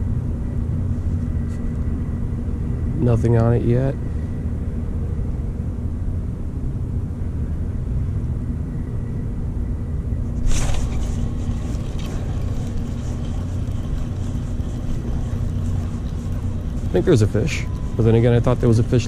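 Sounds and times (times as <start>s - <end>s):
faint hum: 0.0s - 19.0s
handling rustle: 10.4s - 18.0s.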